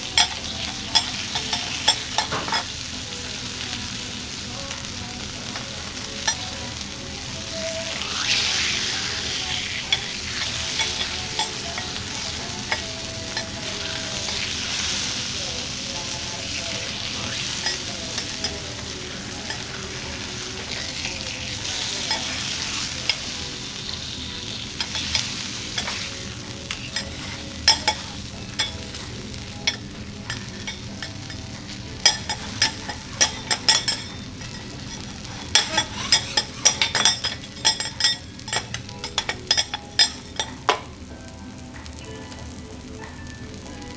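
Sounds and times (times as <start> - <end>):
spatulas clinking on griddle: 0.0 - 2.9, 4.9 - 41.0
steak sizzling on a griddle: 0.0 - 43.9
metal spatulas scraping: 7.9 - 15.2, 16.5 - 40.5.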